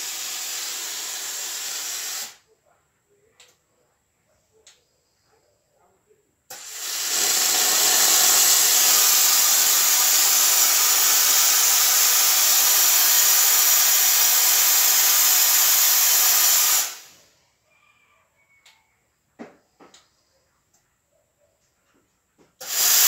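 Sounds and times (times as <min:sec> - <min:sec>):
steam hissing from nozzle: 0:00.0 - 0:02.4, 0:06.5 - 0:17.1, 0:22.6 - 0:23.0.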